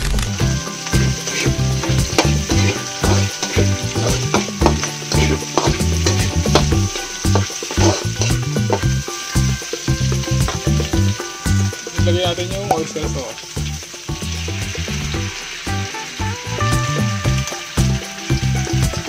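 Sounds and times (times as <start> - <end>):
metal spatula scraping wok: 0.0 - 12.0
meat sizzling in hot oil: 0.0 - 19.0.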